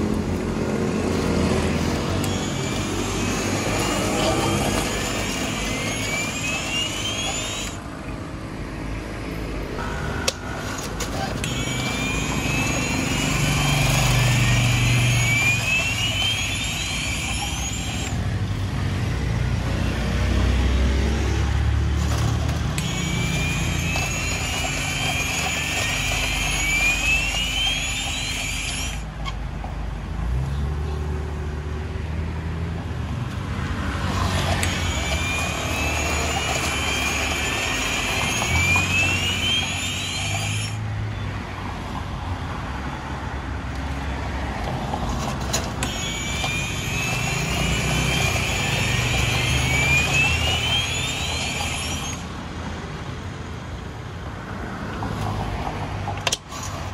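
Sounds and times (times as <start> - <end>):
road traffic rumbling: 0.0 - 56.9.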